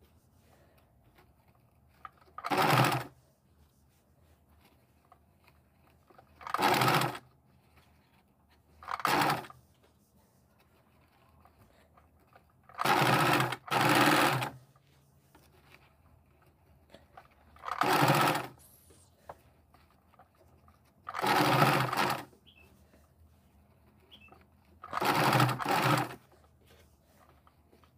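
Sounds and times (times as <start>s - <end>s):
sewing machine stitching: 1.2s - 3.2s, 4.6s - 9.6s, 10.7s - 14.6s, 15.5s - 19.1s, 19.7s - 22.7s, 23.6s - 27.9s.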